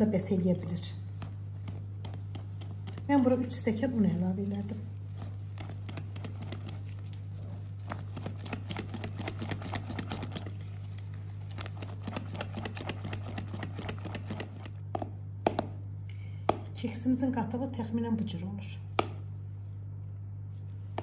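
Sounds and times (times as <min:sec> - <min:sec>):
steady low hum: 0:00.0 - 0:21.0
whisk clicking against glass bowl: 0:01.2 - 0:03.2, 0:05.6 - 0:06.9, 0:11.8 - 0:14.8.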